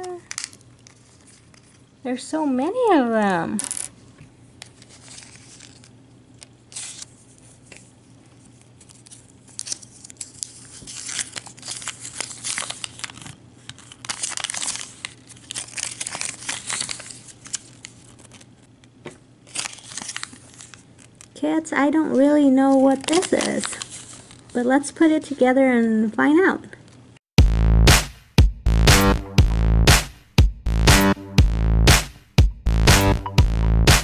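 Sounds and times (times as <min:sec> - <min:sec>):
paper leaflet crinkling: 0:00.1 - 0:01.9, 0:04.6 - 0:21.4, 0:22.4 - 0:24.8.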